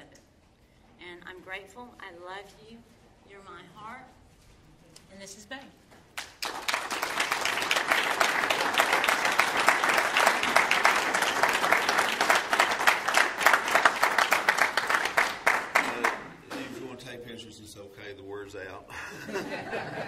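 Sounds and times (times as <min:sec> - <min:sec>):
audience applauding: 0:06.2 - 0:16.4.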